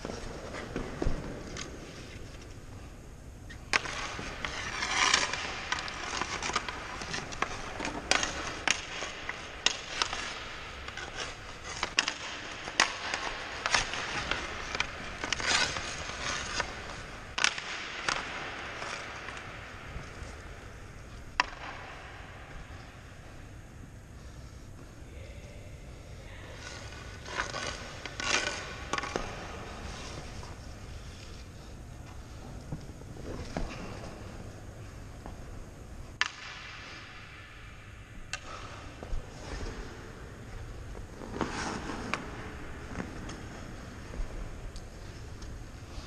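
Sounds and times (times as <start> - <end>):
skate blades scraping on ice: 3.5 - 23.0, 26.6 - 31.6, 38.4 - 46.0
pucks clacking: 3.5 - 23.1, 26.6 - 30.9, 36.2 - 45.6.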